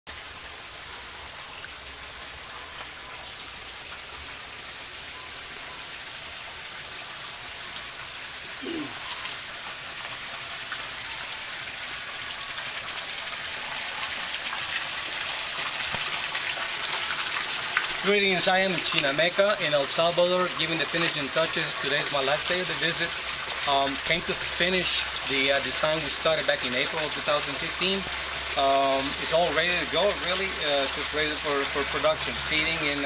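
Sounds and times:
short low falling call: 8.6s - 9.1s.

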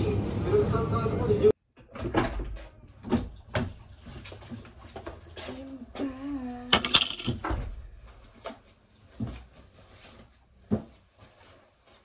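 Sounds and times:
door shutting and latching: 1.8s - 3.3s.

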